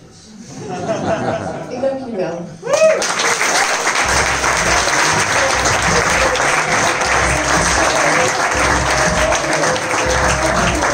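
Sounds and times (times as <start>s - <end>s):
audience applauding: 2.7s - 10.9s.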